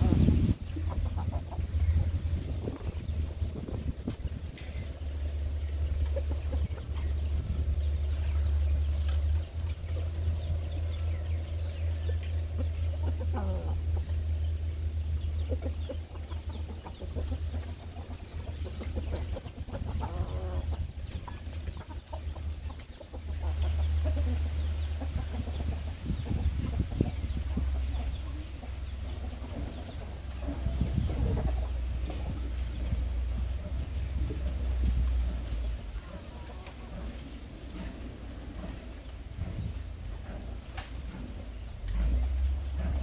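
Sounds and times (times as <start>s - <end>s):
roosters clucking: 0.0s - 43.0s
steady low rumble: 0.0s - 43.0s.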